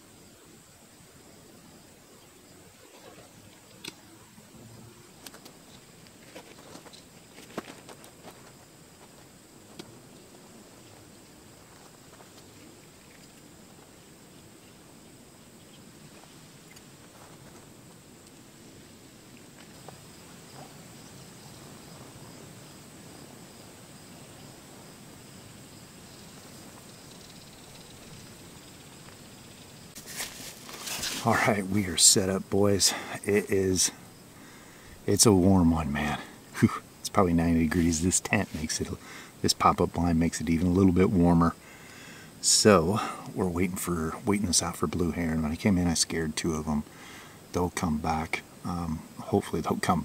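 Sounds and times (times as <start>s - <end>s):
high-pitched hiss: 0.0s - 50.0s
insect chirp: 0.0s - 50.0s
insects trilling: 0.0s - 50.0s
outdoor background noise: 0.0s - 50.0s
fabric rustling: 30.0s - 31.3s.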